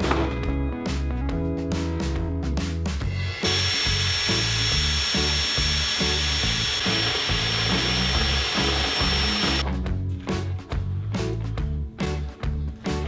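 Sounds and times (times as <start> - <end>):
background music with steady beat: 0.0 - 13.0
cordless drill whining through steel: 3.3 - 9.6.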